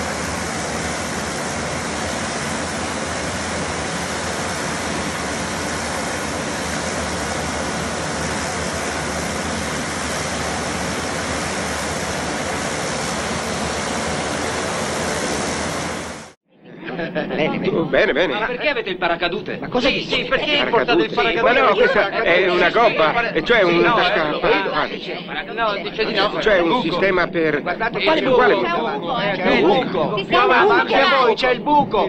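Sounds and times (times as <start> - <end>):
turboprop plane cabin drone: 0.0 - 17.3.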